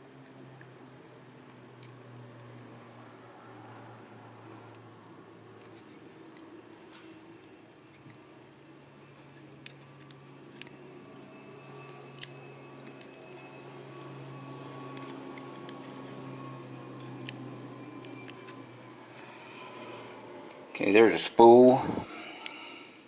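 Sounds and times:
faint steady hum: 0:00.0 - 0:23.0
tweezers clicking on lock parts: 0:09.6 - 0:14.2, 0:14.9 - 0:16.2.

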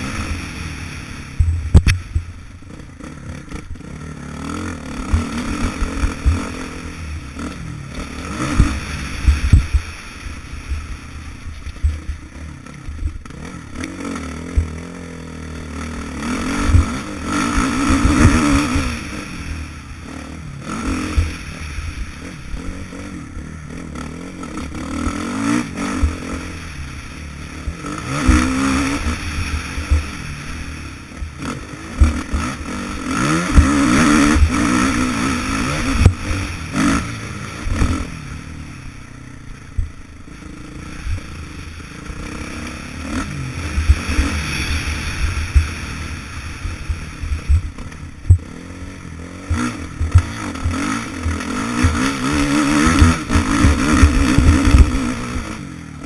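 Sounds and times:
motorbike engine revving: 0:00.0 - 0:56.0
low thumps and clatter: 0:05.0 - 0:06.5, 0:08.5 - 0:09.9, 0:11.6 - 0:13.8, 0:16.6 - 0:17.1, 0:46.9 - 0:48.4, 0:49.4 - 0:55.3.

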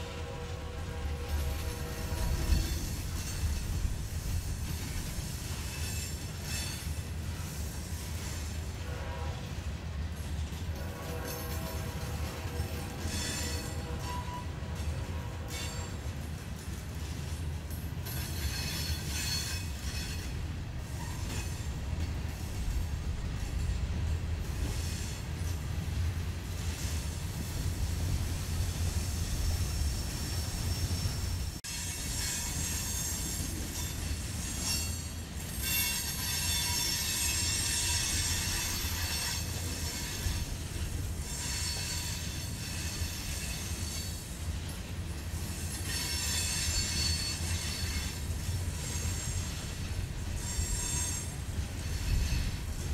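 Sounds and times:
train wheels rumbling on rails: 0:00.0 - 0:52.9
high wheel squeal: 0:29.1 - 0:40.5, 0:41.2 - 0:44.2, 0:45.8 - 0:52.8.

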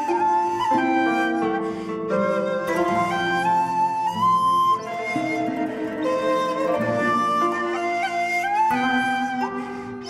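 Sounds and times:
instrumental music with flute melody: 0:00.0 - 0:10.0.

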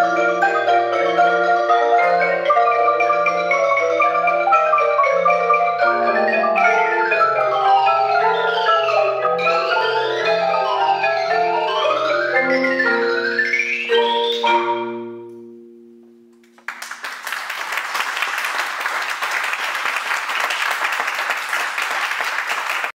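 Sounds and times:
marimba music: 0:00.0 - 0:16.6
applause: 0:16.5 - 0:22.9.

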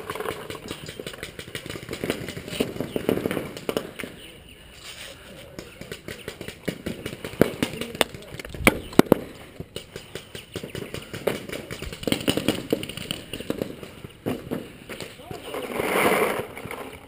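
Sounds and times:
paintball markers firing: 0:00.0 - 0:04.2, 0:05.4 - 0:15.2.

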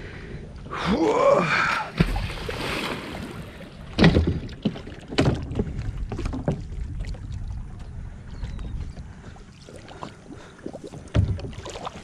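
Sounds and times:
water splashing and dripping: 0:09.5 - 0:12.0.

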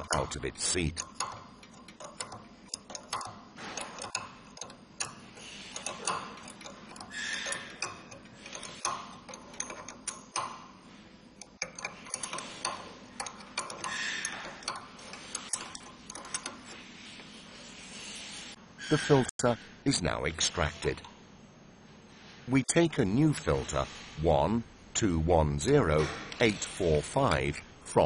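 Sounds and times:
wrench metal clicks: 0:00.0 - 0:10.6, 0:11.4 - 0:16.8
metal scraping: 0:00.0 - 0:19.7, 0:22.1 - 0:24.5.

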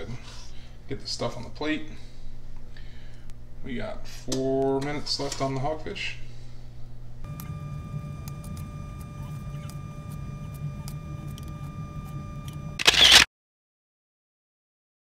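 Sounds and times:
steady hum: 0:00.0 - 0:13.2
faint whine: 0:06.2 - 0:13.2.

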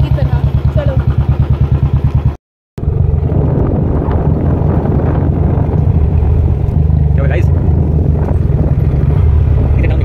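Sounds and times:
motorcycle engine running: 0:00.0 - 0:10.0
wind on microphone: 0:02.8 - 0:10.0.

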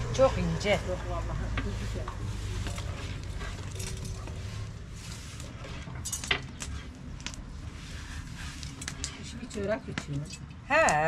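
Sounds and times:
kitchen utensils tapping and clinking: 0:05.9 - 0:06.8.

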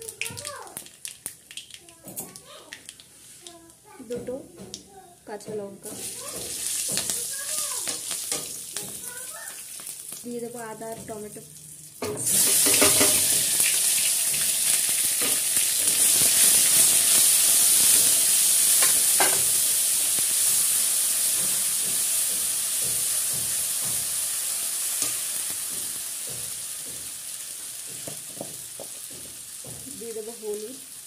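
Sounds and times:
food sizzling in hot oil: 0:00.0 - 0:04.1, 0:04.7 - 0:31.0
metal spatula scraping pan: 0:12.0 - 0:13.5.

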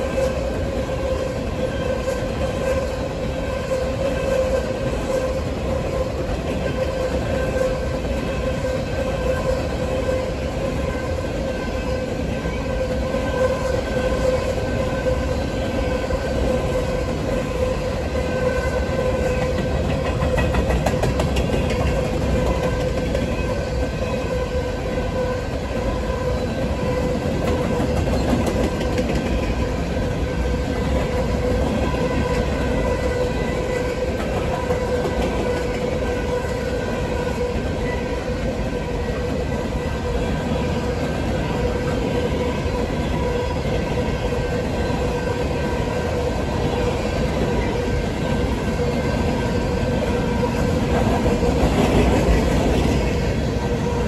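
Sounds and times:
freight train wheels rumbling: 0:00.0 - 0:54.0
wheels clacking over rail joints: 0:19.0 - 0:24.2, 0:26.8 - 0:36.7.

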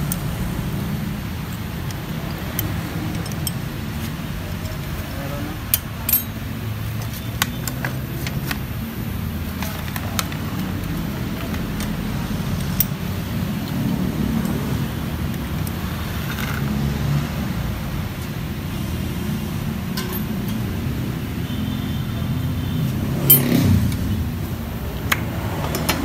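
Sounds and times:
background traffic rumble: 0:00.0 - 0:26.0
metal tools clinking: 0:01.4 - 0:08.6, 0:09.5 - 0:16.7, 0:19.9 - 0:20.7, 0:23.2 - 0:24.1.

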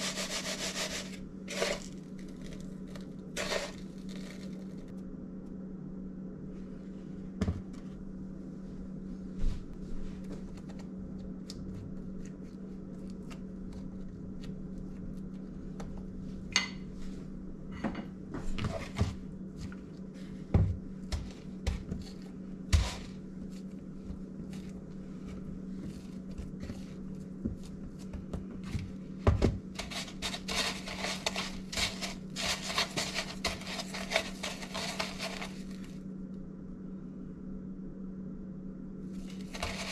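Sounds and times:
dough rustling in breadcrumbs: 0:00.0 - 0:04.9, 0:18.7 - 0:36.0, 0:39.2 - 0:39.9
steady low hum: 0:00.0 - 0:39.9.

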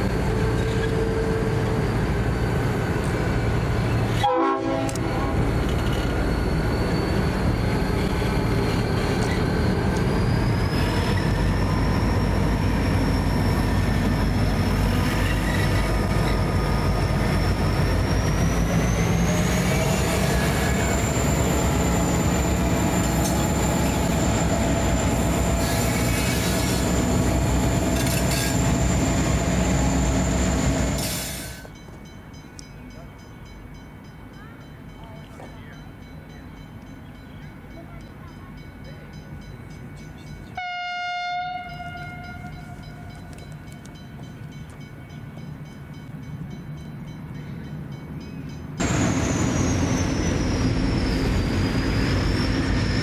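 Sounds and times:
train wagons rolling over rails: 0:00.0 - 0:40.6
high wheel squeal: 0:00.4 - 0:04.1, 0:05.3 - 0:31.7, 0:48.8 - 0:53.0
locomotive engines running: 0:04.9 - 0:40.6, 0:42.4 - 0:53.0.

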